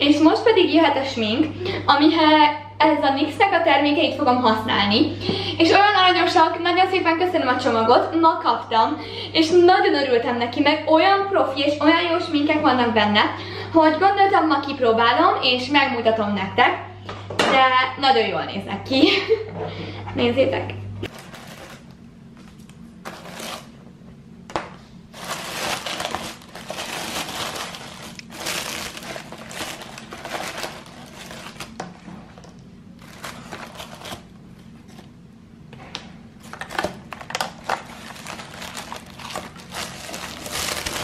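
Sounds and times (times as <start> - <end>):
tissue paper crinkling: 21.1 - 21.9, 23.1 - 23.7, 25.1 - 31.8, 33.0 - 34.3, 36.4 - 41.0.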